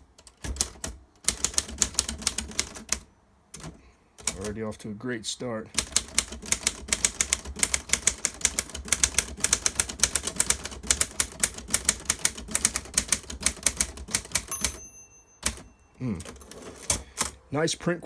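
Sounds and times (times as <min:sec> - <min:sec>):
manual typewriter typing: 0:00.2 - 0:04.6, 0:05.7 - 0:14.8, 0:15.4 - 0:17.4
typewriter bell ringing: 0:14.4 - 0:16.9.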